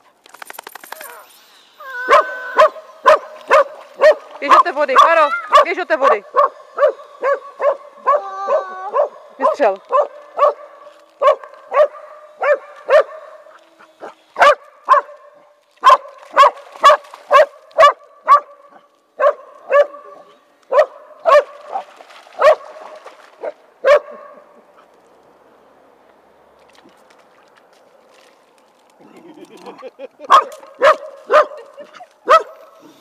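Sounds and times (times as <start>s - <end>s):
small dog barking: 2.0s - 13.4s, 14.0s - 15.2s, 15.8s - 18.5s, 19.2s - 21.8s, 22.4s - 22.6s, 23.4s - 24.4s, 30.3s - 32.6s.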